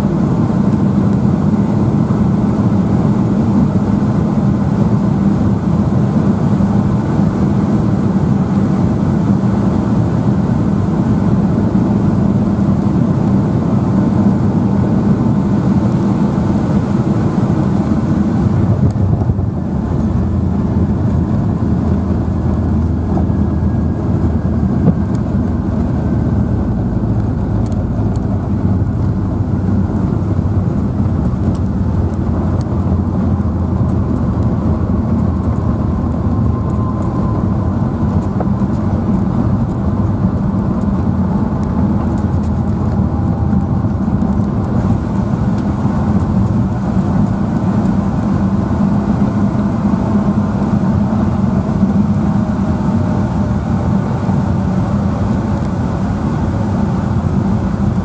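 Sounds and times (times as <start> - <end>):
aircraft cabin rumble: 0.0 - 58.0.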